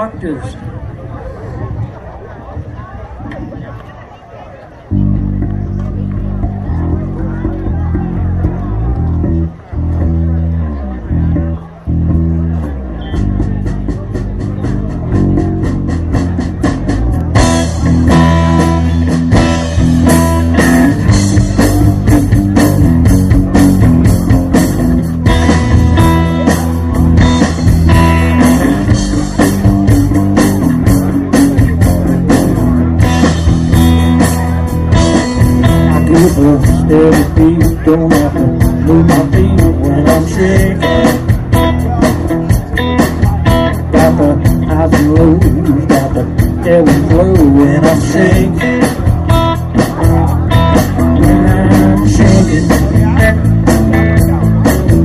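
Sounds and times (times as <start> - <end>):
bass guitar: 4.8 - 55.0
electric guitar: 4.9 - 55.0
drum kit with cymbals: 13.2 - 55.0.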